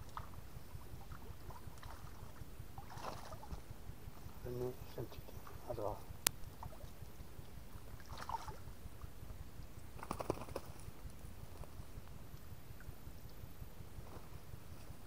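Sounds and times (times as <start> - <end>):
low steady rumble: 0.0 - 15.0
fishing net rustling: 1.3 - 4.4.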